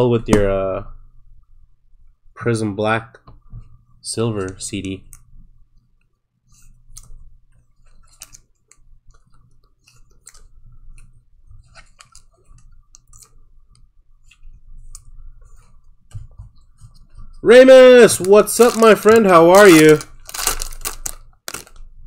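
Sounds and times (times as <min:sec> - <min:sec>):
faint steady hum: 0:00.0 - 0:22.0
trading cards and plastic crinkling: 0:07.8 - 0:13.5, 0:17.5 - 0:21.9.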